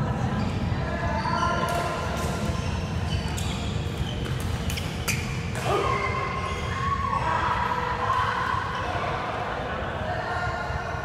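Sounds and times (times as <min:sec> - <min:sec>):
busy hall rumble: 0:00.0 - 0:11.0
shoes squeaking on court floor: 0:00.2 - 0:06.8.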